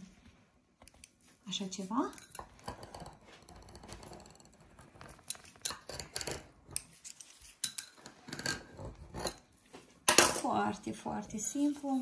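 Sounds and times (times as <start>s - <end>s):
bowl scraping on work surface: 2.2s - 9.6s.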